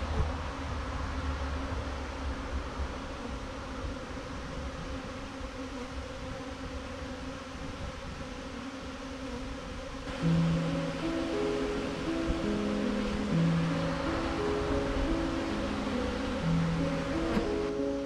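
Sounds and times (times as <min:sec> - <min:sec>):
bees buzzing: 0:00.5 - 0:18.0
music: 0:10.1 - 0:18.0.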